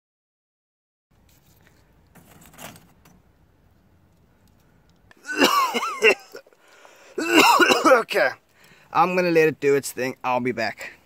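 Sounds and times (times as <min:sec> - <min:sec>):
faint handling noise: 0:01.1 - 0:05.2.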